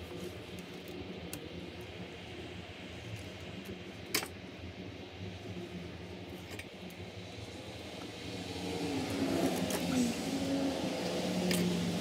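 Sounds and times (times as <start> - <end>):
steady low hum: 0.0 - 12.0
vehicle engine with wavering pitch: 6.9 - 12.0.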